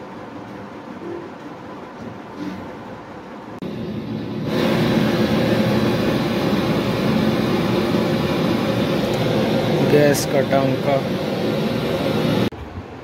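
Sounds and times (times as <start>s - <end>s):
gas torch hissing: 3.6s - 12.5s.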